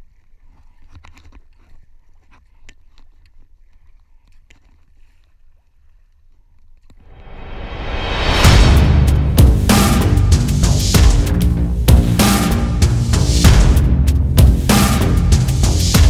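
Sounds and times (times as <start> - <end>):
loud swelling sound: 7.1 - 16.0.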